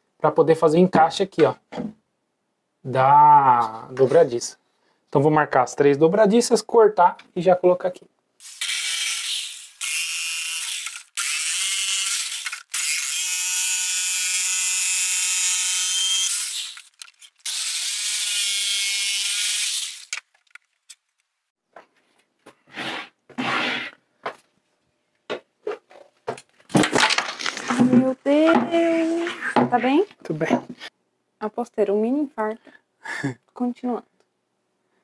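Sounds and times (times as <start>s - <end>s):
jigsaw cutting wood: 8.4s - 20.2s.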